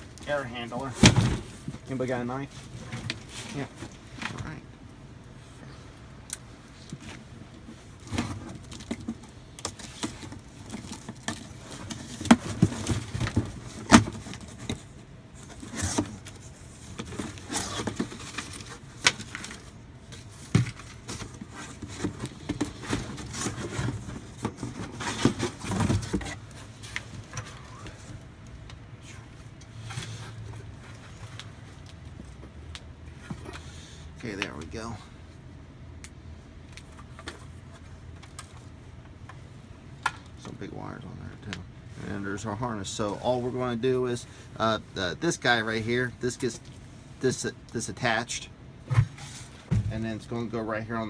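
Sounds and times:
knocks and scrapes: 0:06.9 - 0:28.2
cardboard rustling: 0:07.0 - 0:28.2.

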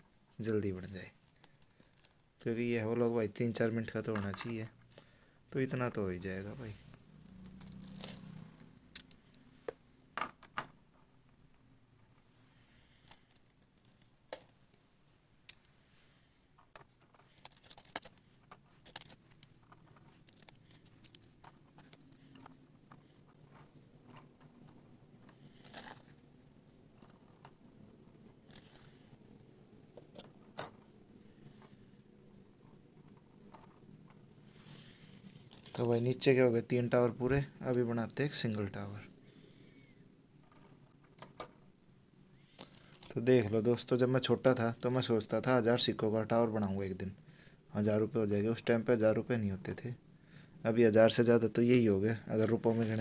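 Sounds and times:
coins clinking: 0:07.2 - 0:09.3, 0:16.7 - 0:24.7, 0:25.3 - 0:26.2, 0:28.4 - 0:29.0, 0:34.8 - 0:36.2, 0:42.4 - 0:43.2, 0:51.8 - 0:53.0.

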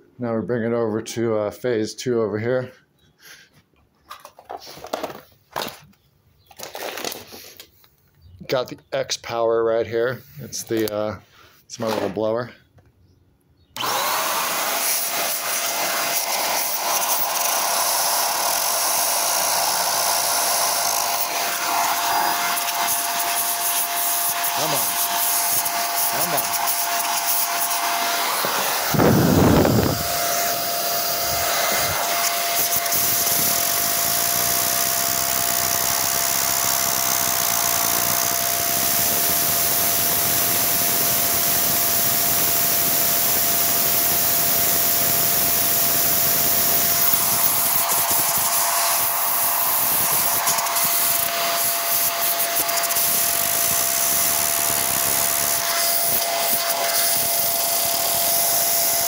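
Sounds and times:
electric air blower rushing: 0:13.8 - 0:59.0
steady whine: 0:24.6 - 0:33.8.

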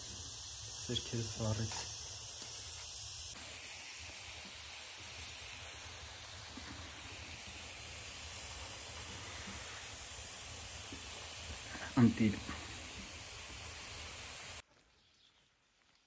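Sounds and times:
mushrooms sizzling: 0:00.0 - 0:16.0.

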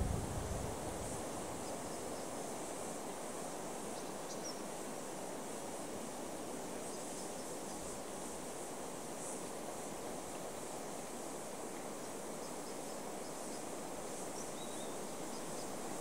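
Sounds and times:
breeze rushing: 0:00.0 - 0:01.5
high insect hiss: 0:00.0 - 0:16.0.

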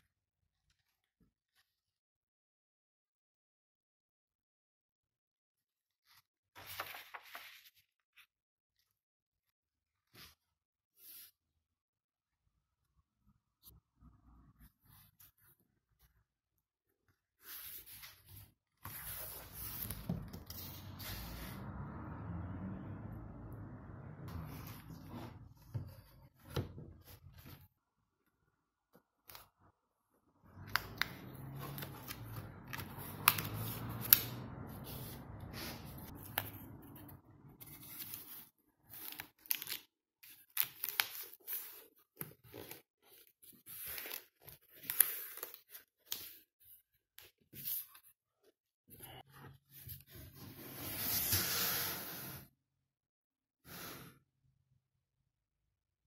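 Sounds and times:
board rubbing and sliding in frame: 0:22.8 - 0:27.6, 0:50.1 - 0:52.5.

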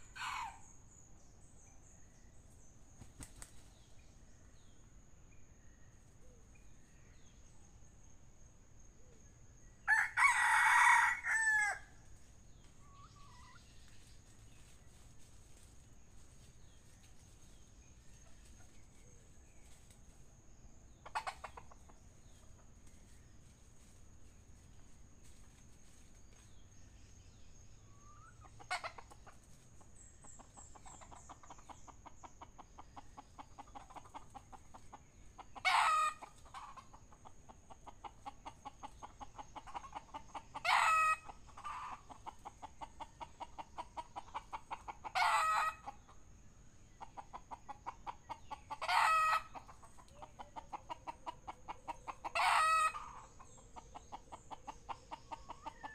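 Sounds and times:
junglefowl clucking: 0:00.0 - 0:00.6, 0:12.8 - 0:13.7, 0:21.0 - 0:23.0, 0:28.0 - 0:46.2, 0:46.9 - 0:55.9
loud crow-like calls: 0:09.9 - 0:11.9.

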